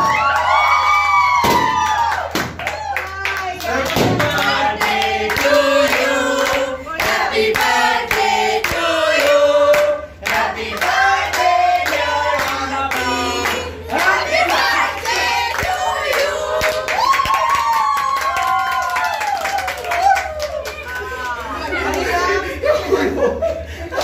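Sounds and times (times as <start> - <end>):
women and children singing: 3.4 - 17.1.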